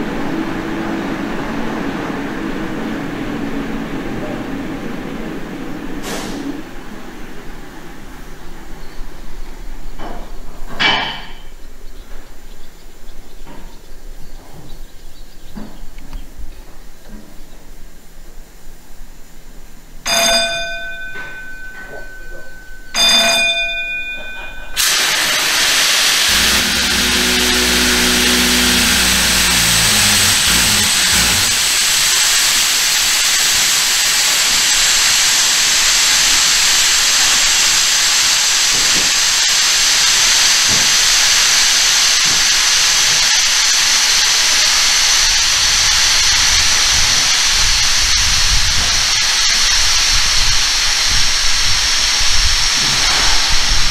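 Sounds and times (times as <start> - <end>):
compressed air hissing: 5.7 - 6.9, 24.8 - 53.9
short ringing tones: 20.1 - 24.8.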